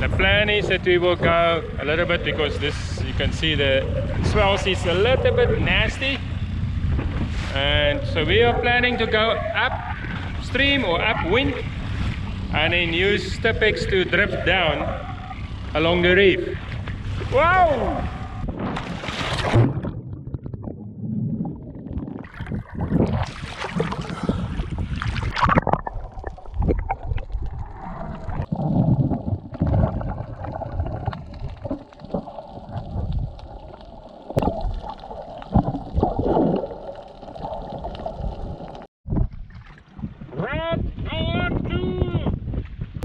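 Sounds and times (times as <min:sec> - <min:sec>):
underwater gurgling: 0:00.0 - 0:40.2
water splashing: 0:00.0 - 0:40.2.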